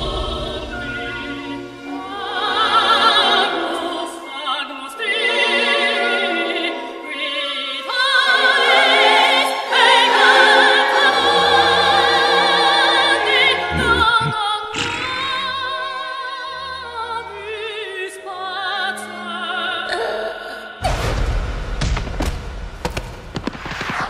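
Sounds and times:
high operatic singing voice: 0:02.0 - 0:20.7.

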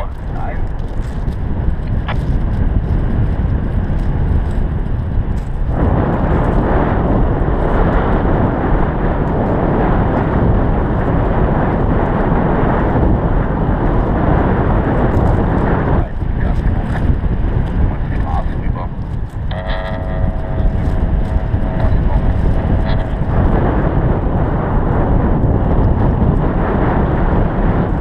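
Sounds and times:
wind buffeting microphone: 0:00.0 - 0:28.0.

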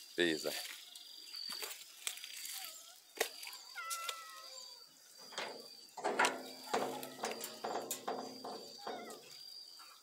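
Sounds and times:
farm animals calling: 0:02.4 - 0:10.0.

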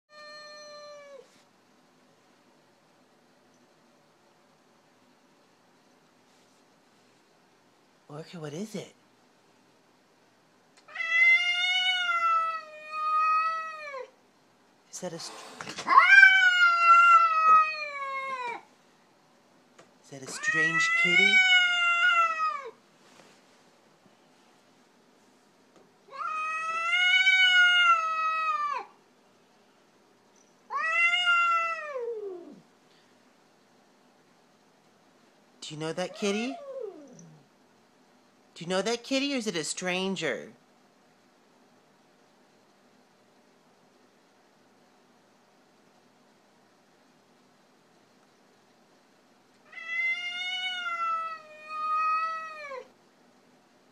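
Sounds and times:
cat yowling: 0:00.1 - 0:01.3, 0:10.8 - 0:14.2, 0:15.8 - 0:18.7, 0:20.4 - 0:22.8, 0:26.1 - 0:29.0, 0:30.7 - 0:32.6, 0:36.1 - 0:37.4, 0:49.6 - 0:52.9.

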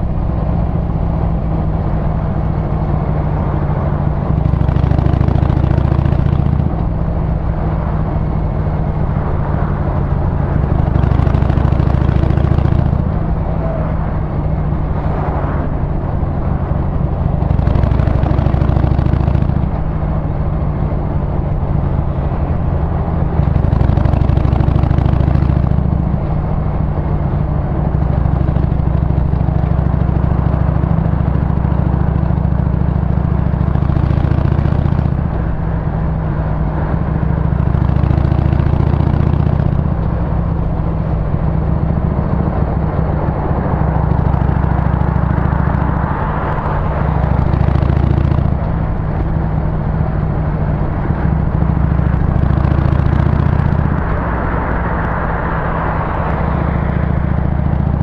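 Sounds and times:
motorcycle engine running: 0:00.0 - 0:58.0
wind and road noise: 0:00.0 - 0:58.0.

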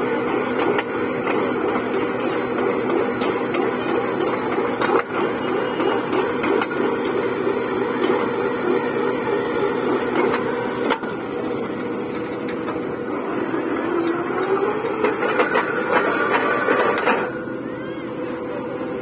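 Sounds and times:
drilling rig running: 0:00.0 - 0:19.0.

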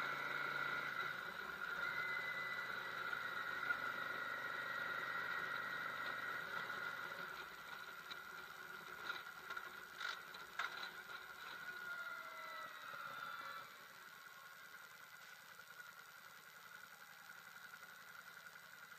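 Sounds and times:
motorcycle engine running: 0:00.0 - 0:18.9
road noise: 0:00.0 - 0:18.9
steady high whine: 0:00.0 - 0:18.9.

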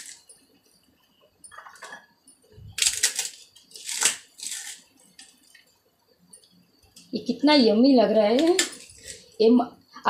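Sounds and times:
fried crisps crunching: 0:02.8 - 0:05.4.

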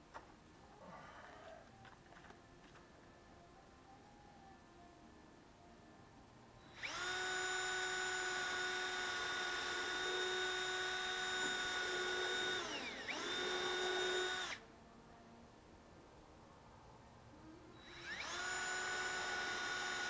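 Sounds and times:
cordless drill whining: 0:06.7 - 0:14.6, 0:17.8 - 0:20.0.

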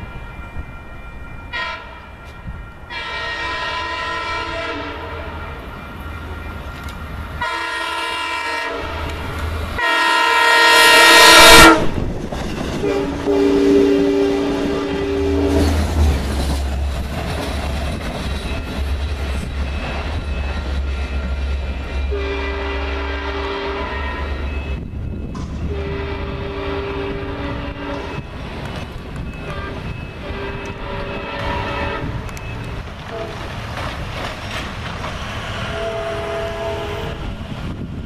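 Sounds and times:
train rumbling past: 0:00.0 - 0:38.0
train horn blasts: 0:01.5 - 0:05.7, 0:07.4 - 0:12.1, 0:12.8 - 0:16.0, 0:22.0 - 0:28.3, 0:29.3 - 0:33.5, 0:35.6 - 0:37.4.

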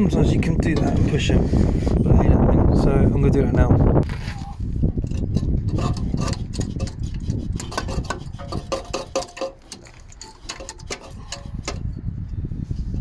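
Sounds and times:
metal clinking and knocking: 0:05.0 - 0:12.0.

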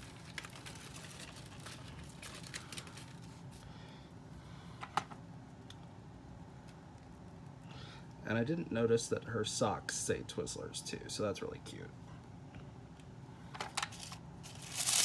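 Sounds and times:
packaging rustling: 0:00.0 - 0:03.6, 0:13.7 - 0:15.0.

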